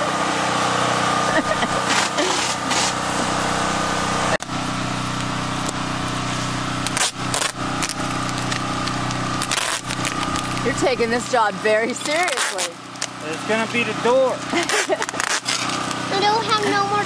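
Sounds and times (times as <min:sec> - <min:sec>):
engine running steadily: 0:00.0 - 0:17.0
packing tape ripping: 0:01.7 - 0:03.0, 0:06.8 - 0:10.8, 0:11.9 - 0:13.2, 0:14.5 - 0:16.1.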